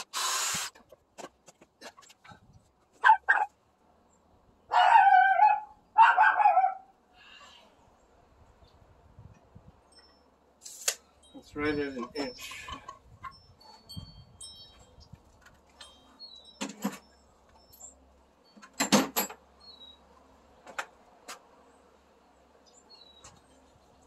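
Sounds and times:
faint high ringing tones: 0:09.8 - 0:20.3
tools knocking and clattering: 0:15.4 - 0:17.9, 0:18.5 - 0:19.4.

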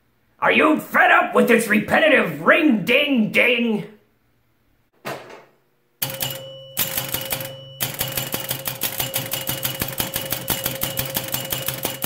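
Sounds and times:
pinball machine bell ringing: 0:06.0 - 0:12.0
pinball relays clacking: 0:06.0 - 0:12.0.

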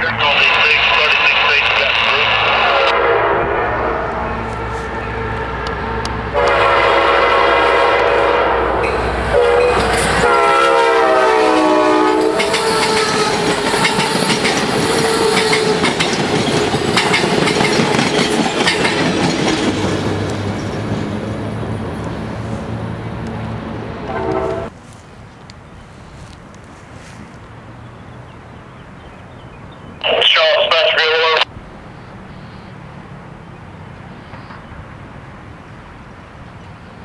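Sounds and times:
locomotive horn blasts: 0:02.3 - 0:13.4, 0:24.0 - 0:24.7
train wheels clicking over rails: 0:11.6 - 0:22.2.

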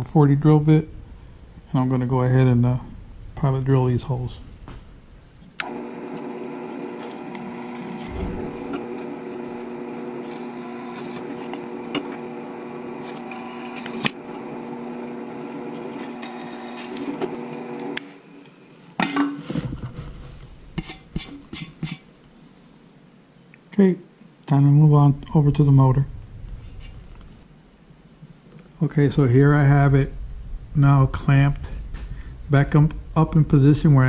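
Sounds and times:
drill press running: 0:05.6 - 0:18.0.

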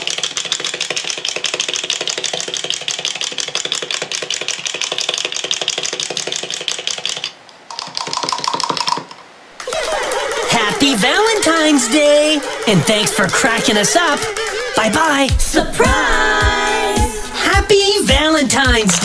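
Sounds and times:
wind-up toys clicking clatter: 0:00.0 - 0:14.8.

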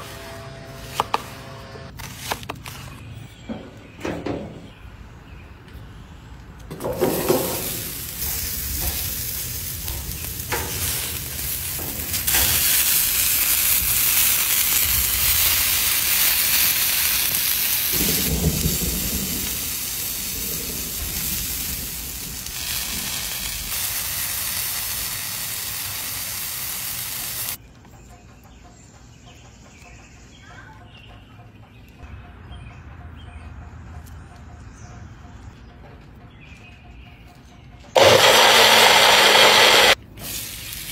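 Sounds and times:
vegetables sizzling on griddle: 0:07.0 - 0:27.6, 0:38.0 - 0:40.9.

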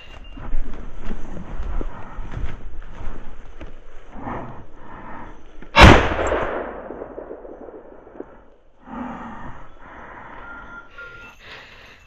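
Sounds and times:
shotgun shot: 0:05.8 - 0:08.4.

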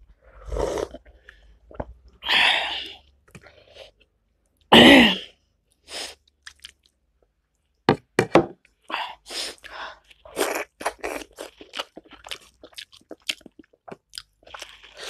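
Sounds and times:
slurping soup: 0:00.2 - 0:01.9
breathing: 0:08.9 - 0:10.1.

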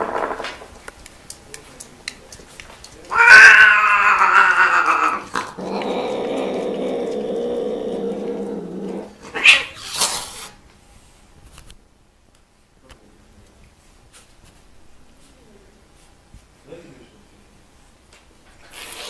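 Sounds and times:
cat yowling: 0:03.1 - 0:07.2, 0:07.8 - 0:10.0
cat growling yowl: 0:03.1 - 0:10.1
cat hissing: 0:03.1 - 0:10.6, 0:18.6 - 0:19.0.

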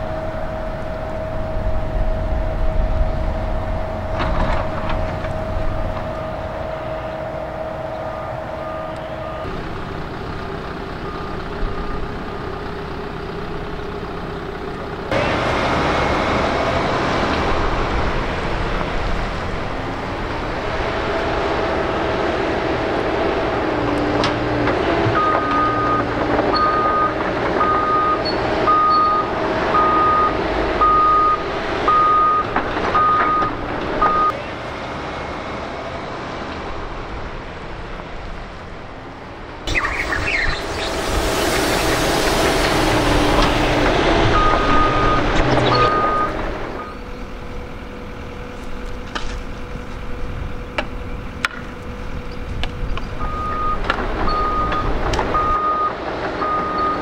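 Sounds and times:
heavy diesel machinery running: 0:00.0 - 0:57.0
backup alarm beeping: 0:39.7 - 0:47.1, 0:53.2 - 0:57.0.

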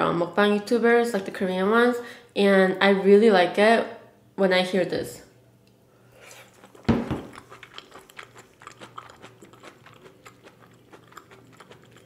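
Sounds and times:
person chewing noodles: 0:06.2 - 0:12.0.

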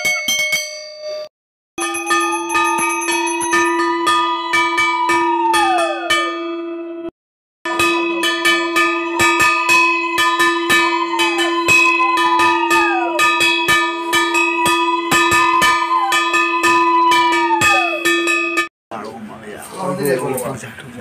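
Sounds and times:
brass hand bell ringing fast: 0:01.8 - 0:06.7, 0:07.7 - 0:18.7.

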